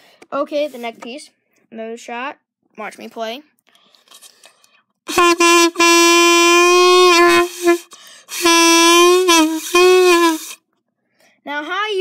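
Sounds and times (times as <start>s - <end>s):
saxophone mouthpiece reedy tone: 5.1s - 10.6s.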